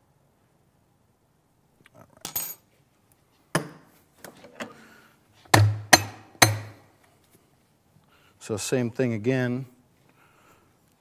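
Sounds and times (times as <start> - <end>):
portafilter knocking: 5.5 - 6.8.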